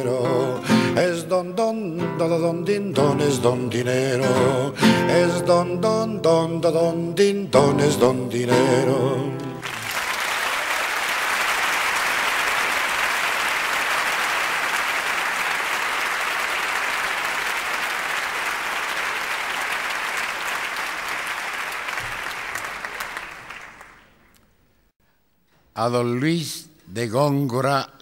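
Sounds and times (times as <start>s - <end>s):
audience applauding: 9.5s - 24.3s.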